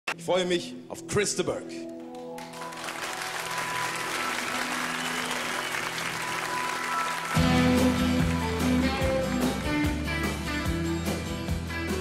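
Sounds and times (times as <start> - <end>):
audience applauding: 2.4 - 10.0
band with guitars playing: 6.6 - 12.0.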